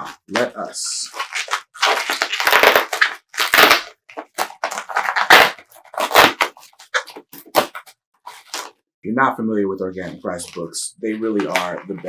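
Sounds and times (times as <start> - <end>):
packing material crinkling: 0.0 - 8.8.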